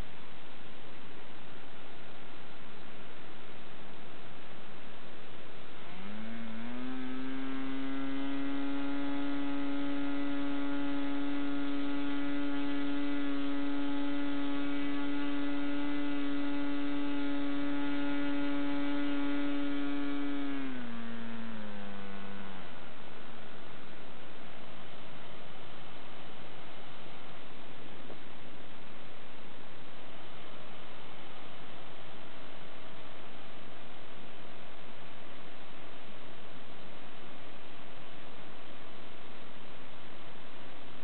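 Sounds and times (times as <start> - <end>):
model engine high-pitched whine: 4.6 - 27.1.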